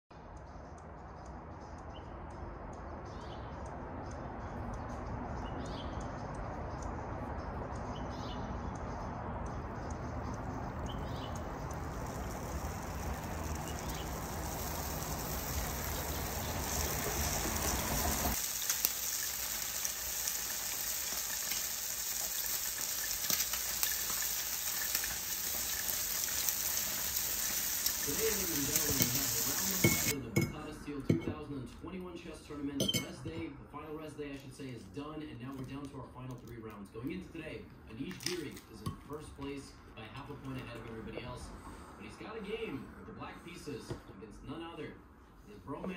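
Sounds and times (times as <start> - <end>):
high chirps: 7.8 - 18.5, 23.9 - 30.2
low outdoor rumble: 8.9 - 18.4
eggs sizzling in a pan: 10.4 - 30.2.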